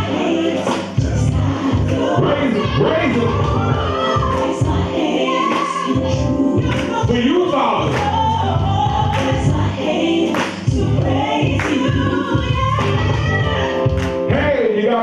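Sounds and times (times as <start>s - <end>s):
choir singing gospel: 0.0s - 15.0s.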